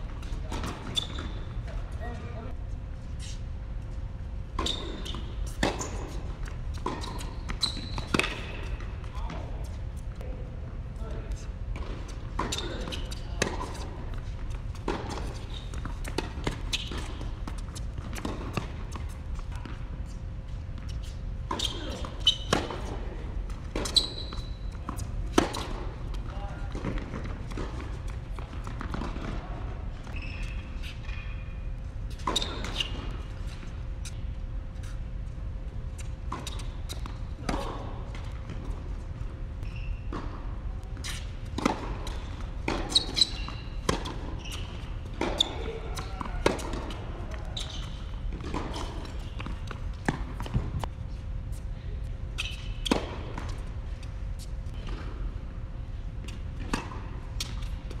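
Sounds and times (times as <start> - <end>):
tennis balls struck and bouncing: 4.6 - 9.4, 41.5 - 47.7.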